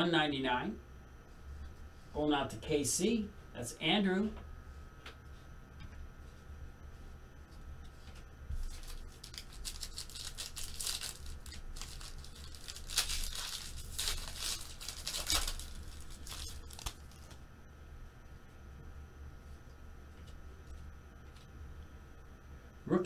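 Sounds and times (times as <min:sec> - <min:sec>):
foil wrapper tearing and crinkling: 0:08.6 - 0:17.4.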